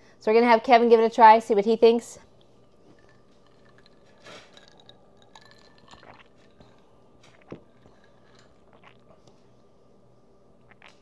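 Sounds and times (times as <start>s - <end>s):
people sipping and swallowing: 2.4s - 9.6s, 10.6s - 11.0s
ice clinking against glass: 3.0s - 6.4s.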